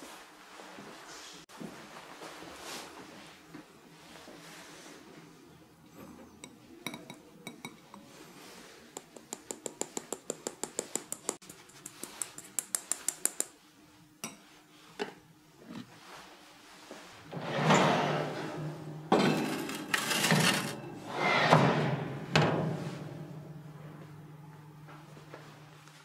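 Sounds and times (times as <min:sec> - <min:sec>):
sieve tapping: 0:09.0 - 0:11.4.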